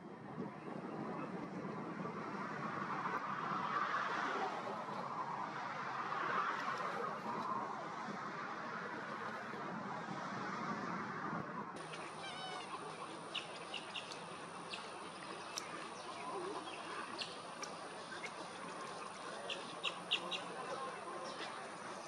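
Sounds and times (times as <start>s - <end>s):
steady rushing noise: 0.0s - 22.0s
egrets calling: 11.8s - 21.8s.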